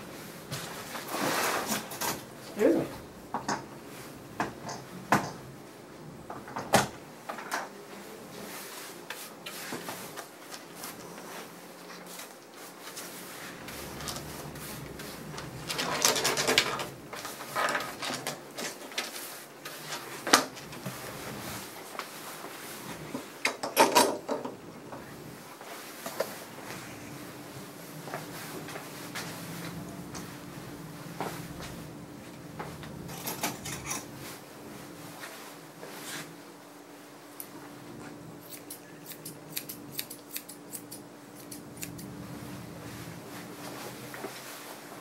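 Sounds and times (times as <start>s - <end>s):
grooming shears snipping: 38.4s - 42.1s.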